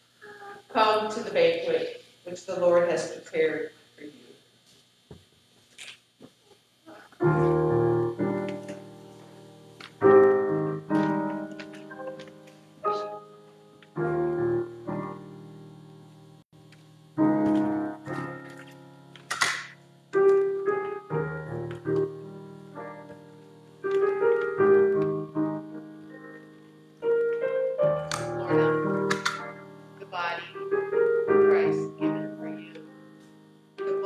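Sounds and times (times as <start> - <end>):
piano playing slow chords: 6.9 - 34.0.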